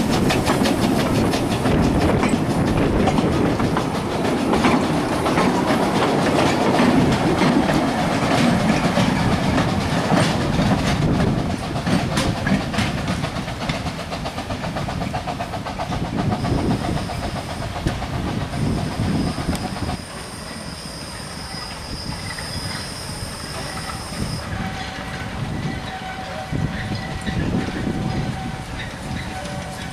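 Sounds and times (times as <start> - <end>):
train clattering over rail joints: 0.0 - 29.9.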